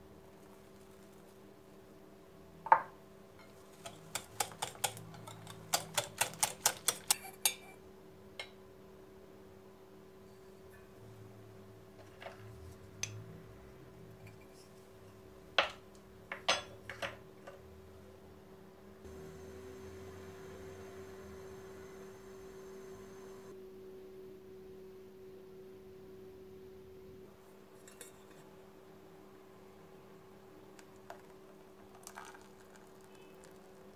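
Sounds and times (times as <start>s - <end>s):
faint steady hum: 0.0s - 33.9s
spoon clinking on metal pot: 3.4s - 7.7s.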